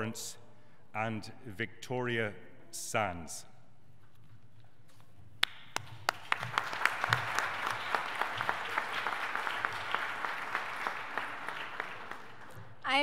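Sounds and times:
audience applause: 5.8 - 12.6.

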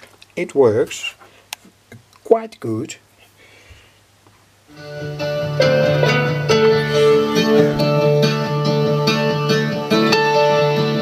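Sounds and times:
music through loudspeaker: 4.7 - 11.0.

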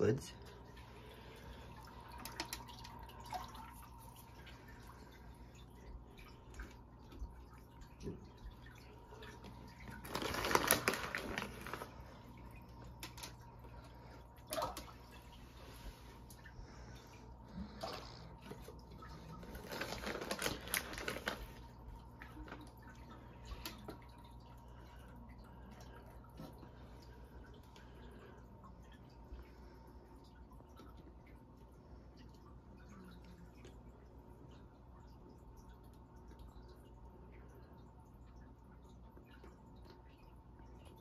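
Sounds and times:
low pump hum: 0.0 - 41.0
water trickling and dripping: 0.0 - 41.0
fish food rattling in container: 9.7 - 12.1, 19.0 - 21.6.

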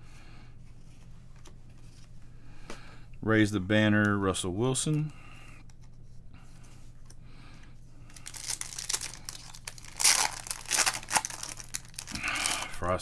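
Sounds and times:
wrapper crinkling and tearing: 8.1 - 12.8.

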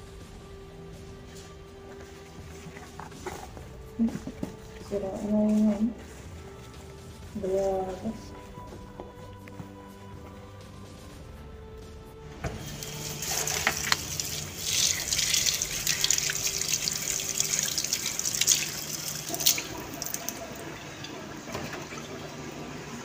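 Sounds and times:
faucet running into a sink: 12.5 - 23.0.

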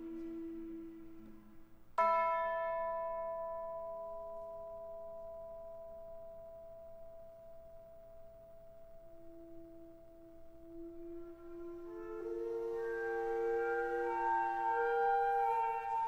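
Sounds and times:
low held flute note: 0.0 - 1.8, 9.4 - 16.0.

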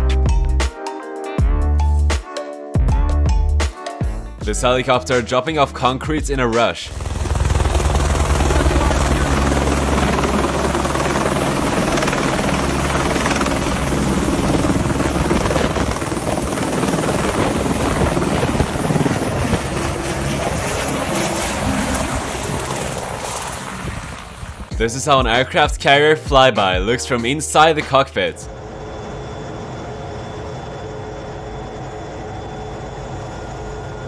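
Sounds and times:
helicopter rotor and engine: 6.5 - 24.8, 28.2 - 34.0.

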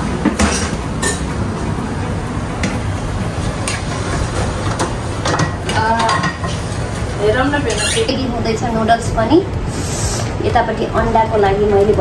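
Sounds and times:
spatula scraping metal frying pan: 7.7 - 8.2.

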